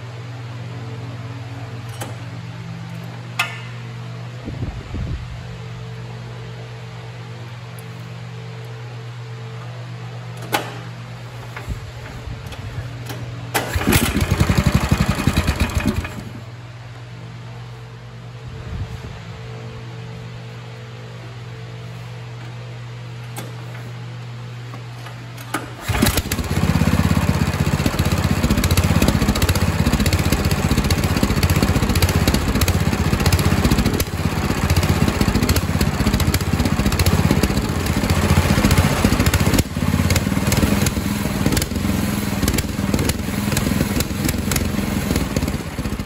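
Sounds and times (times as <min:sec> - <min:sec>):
small engine starting and running: 0:13.5 - 0:16.5, 0:25.4 - 0:46.0.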